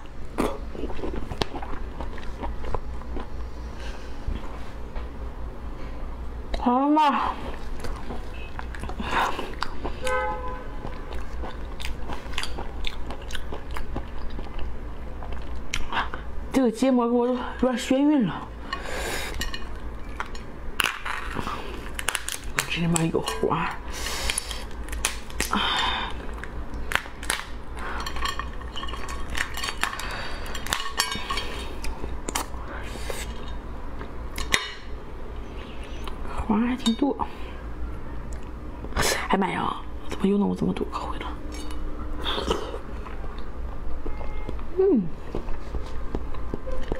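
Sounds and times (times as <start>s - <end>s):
low steady hum: 0.0s - 46.9s
chewing: 0.4s - 3.4s, 7.5s - 10.0s, 10.8s - 16.2s
lobster shell cracking: 20.1s - 23.4s, 24.2s - 25.6s, 26.3s - 31.1s.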